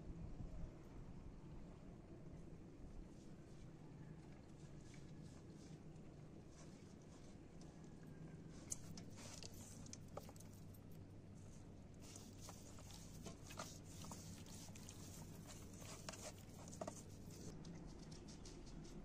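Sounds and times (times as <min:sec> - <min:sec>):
low steady hum: 0:00.0 - 0:19.0
hands rubbing chicken: 0:08.7 - 0:10.7, 0:12.0 - 0:19.0.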